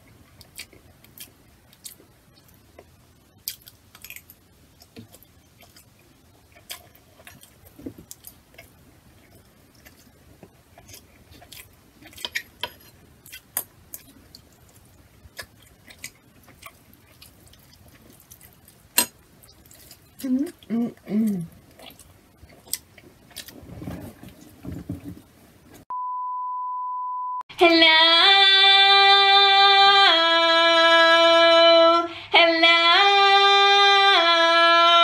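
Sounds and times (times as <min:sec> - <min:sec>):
chewing and mouth sounds: 0:00.2 - 0:23.6.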